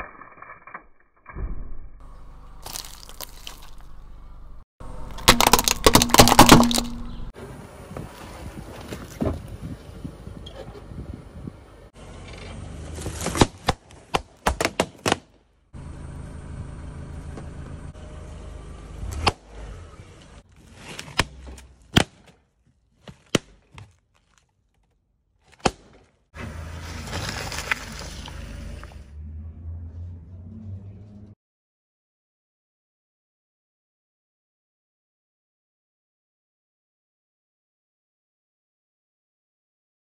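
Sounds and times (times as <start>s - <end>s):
objects and balloons being crushed: 1.3s - 3.9s, 5.0s - 7.3s, 12.9s - 15.4s, 20.4s - 26.3s
car engine humming: 2.0s - 7.9s, 15.8s - 20.4s
paper crackling: 2.6s - 4.0s
tyre squishing wet gel: 2.6s - 4.0s
car tyre rumbling on asphalt: 26.4s - 31.4s.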